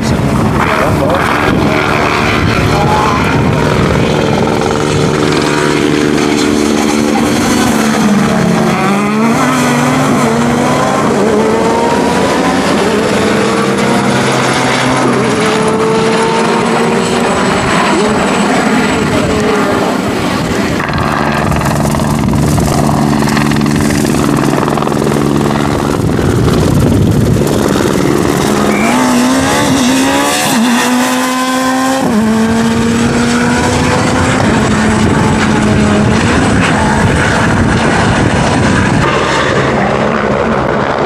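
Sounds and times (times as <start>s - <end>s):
rally car engine at full throttle: 0.0s - 41.0s.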